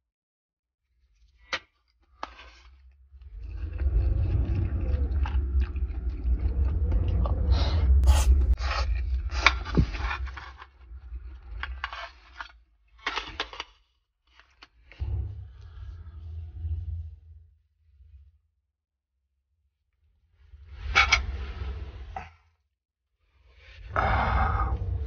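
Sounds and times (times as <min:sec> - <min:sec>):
low rumble: 0:03.2 - 0:11.8, 0:15.0 - 0:18.5
scraping and clicking of handling: 0:11.4 - 0:14.8.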